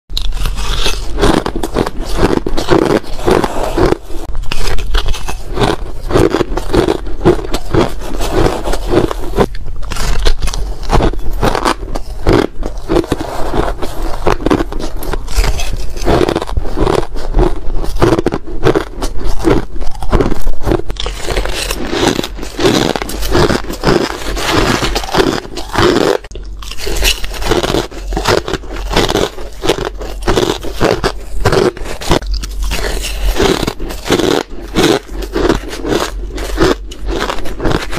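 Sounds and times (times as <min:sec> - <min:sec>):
ice being bitten and crunched: 0:00.2 - 0:37.9
spoon scraping ice in a bowl: 0:00.4 - 0:06.7.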